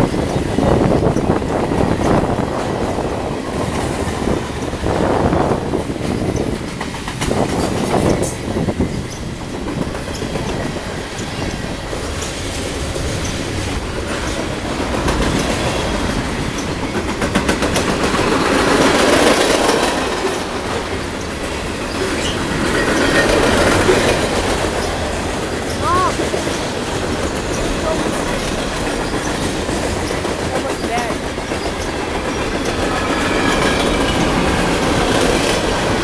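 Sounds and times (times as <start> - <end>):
clickety-clack over rail joints: 0.0 - 36.0
train wheels rumbling on rail: 0.0 - 36.0.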